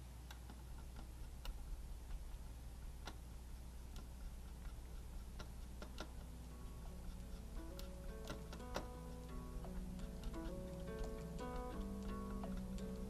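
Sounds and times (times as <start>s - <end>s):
steady low hum: 0.0s - 13.0s
light plastic clicks: 3.9s - 13.0s.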